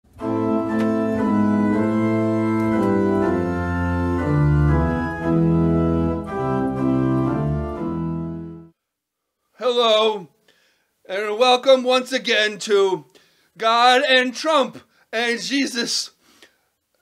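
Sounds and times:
organ playing chords: 0.1s - 8.8s.

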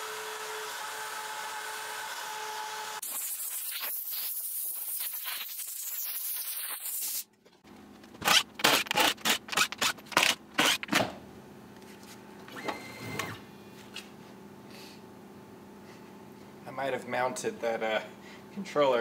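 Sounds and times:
short mechanical whine: 12.5s - 13.5s.

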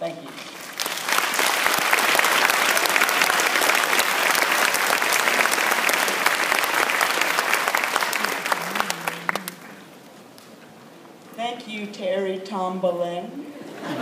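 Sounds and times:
audience applauding: 0.6s - 10.0s.

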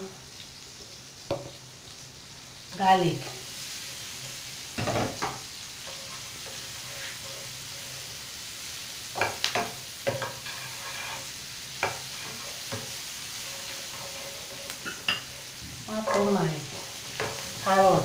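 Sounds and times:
onion sizzling in butter: 0.0s - 18.0s
spatula scraping a pan: 3.4s - 8.4s, 9.2s - 18.0s.

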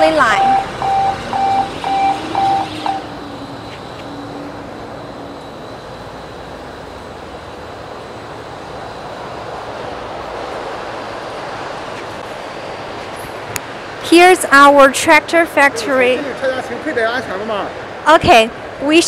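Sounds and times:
electronic warning beeper: 0.0s - 6.5s
industrial background noise: 0.0s - 19.0s.

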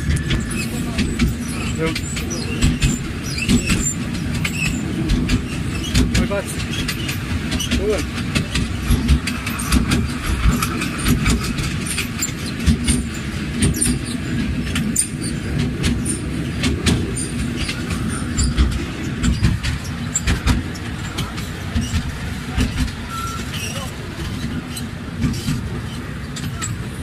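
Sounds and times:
carriage rattling and clattering: 0.0s - 27.0s
small train rumbling: 0.0s - 27.0s.

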